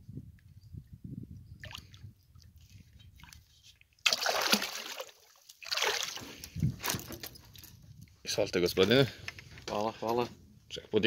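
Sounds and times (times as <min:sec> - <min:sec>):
fish splashing in water: 0:04.0 - 0:06.3.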